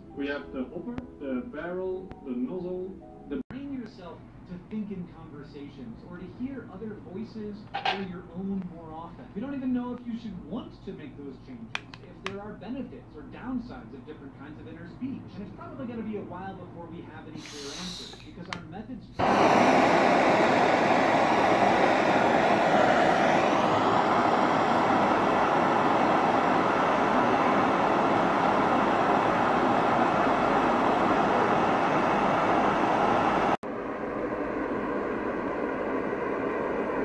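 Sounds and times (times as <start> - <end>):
forge burner noise: 3.6 - 37.0
gas torch rushing hiss: 17.4 - 18.3, 19.2 - 33.6.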